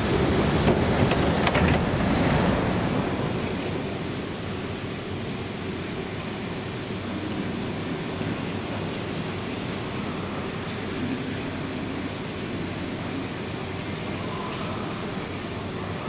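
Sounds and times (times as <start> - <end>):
sliding doors clacking: 0.0 - 4.4
train humming: 0.0 - 16.0.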